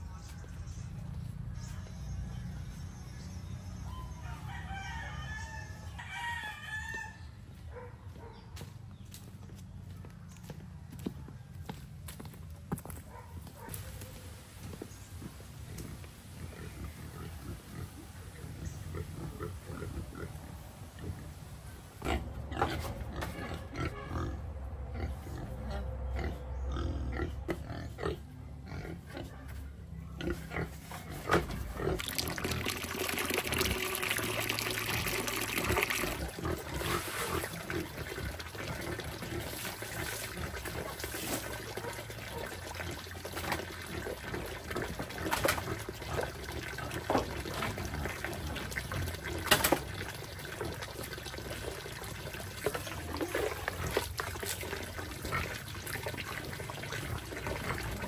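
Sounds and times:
pigs grunting: 15.7s - 21.4s, 22.0s - 29.4s, 30.2s - 32.7s, 34.8s - 58.0s
water running into a plastic bucket: 32.0s - 58.0s.

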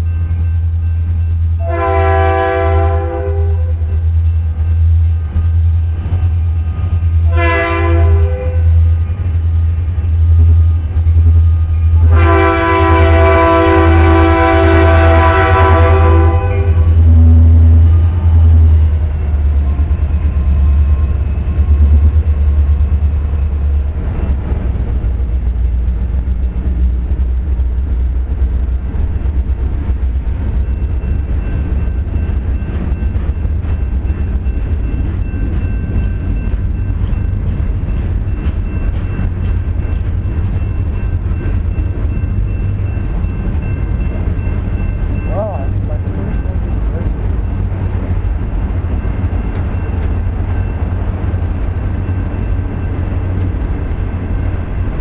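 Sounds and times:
diesel engine low rumble: 0.0s - 55.0s
locomotive air horn chord: 1.6s - 4.0s, 7.2s - 9.8s, 10.6s - 18.2s
train wheels clicking on rails: 3.7s - 55.0s.

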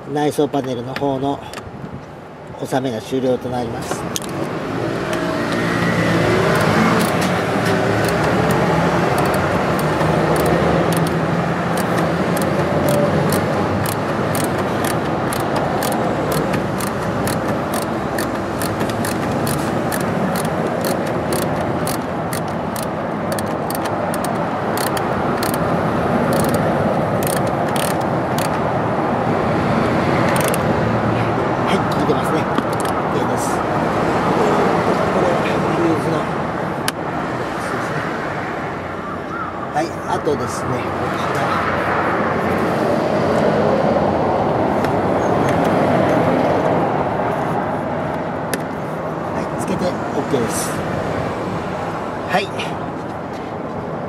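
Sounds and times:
steady background noise: 0.0s - 54.0s
ratchet clicking: 6.5s - 28.6s, 30.3s - 30.6s.

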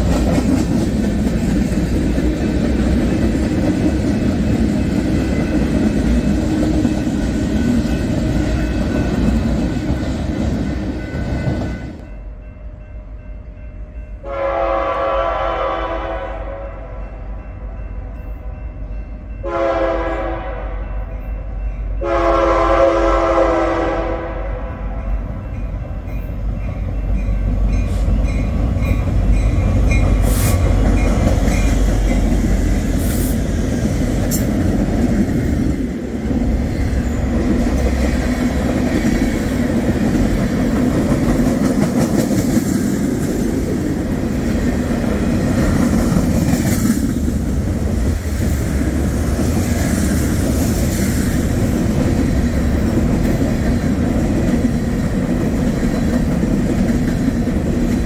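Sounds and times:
train rumbling and wheel clatter: 0.0s - 58.0s
train horn blasts: 14.2s - 17.7s, 19.4s - 21.3s, 22.0s - 25.2s.

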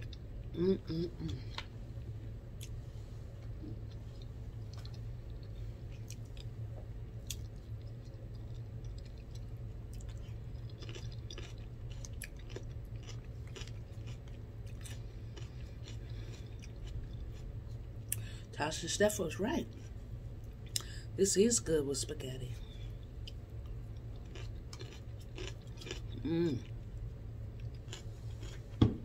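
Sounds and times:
low hum: 0.0s - 29.0s
person chewing food: 3.4s - 18.4s, 23.0s - 28.8s.

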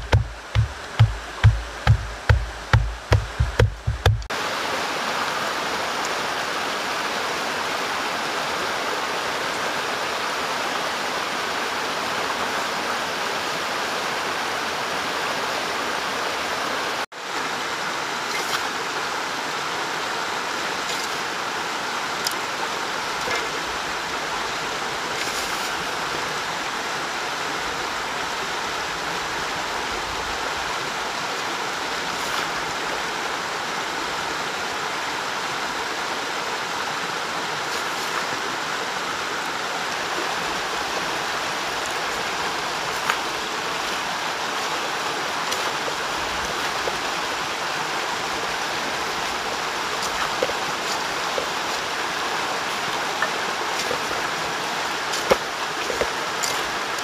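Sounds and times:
rushing creek water: 0.0s - 57.0s.

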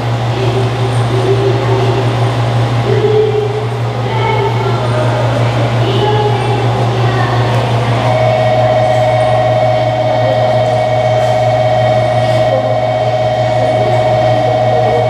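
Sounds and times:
electric train rumble: 0.0s - 15.0s
high-pitched tone: 7.9s - 15.0s.

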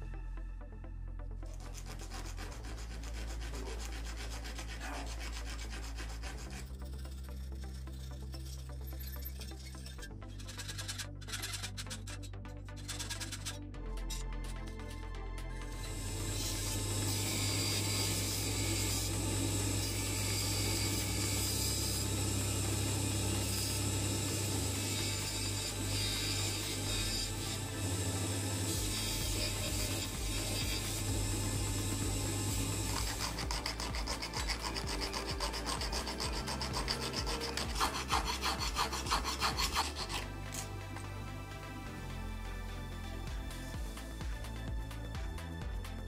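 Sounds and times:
hand file rasping on steel: 1.4s - 15.0s, 15.8s - 41.1s
bench grinder motor hum: 1.5s - 44.6s.

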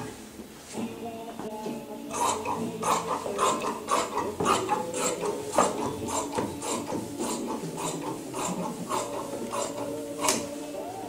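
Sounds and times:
shears snipping cloth: 2.1s - 10.8s.

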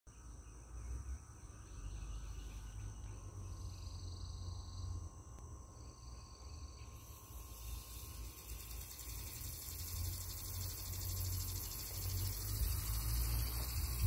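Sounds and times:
bright high insect trill: 0.1s - 14.0s
insects trilling: 0.1s - 14.0s.

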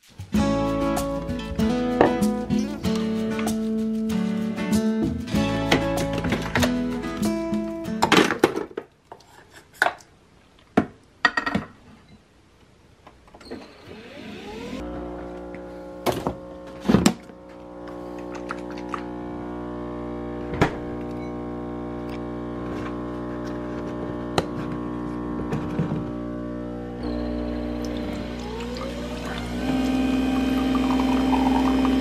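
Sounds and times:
coffee machine motor humming: 13.9s - 32.0s.

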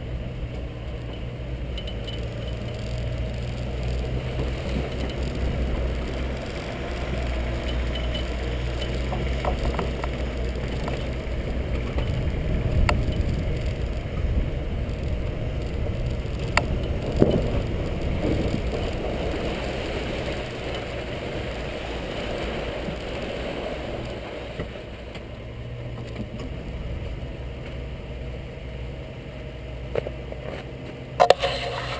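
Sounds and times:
off-road vehicle engine running: 0.0s - 31.9s
sharp clicks and knocks: 7.6s - 12.2s.

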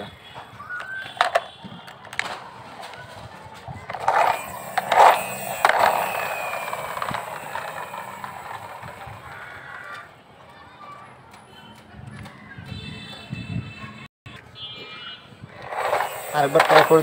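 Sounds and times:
toy truck grinding on concrete: 1.0s - 10.1s, 15.6s - 17.0s
toy friction motor whir: 3.8s - 10.0s, 15.6s - 17.0s.

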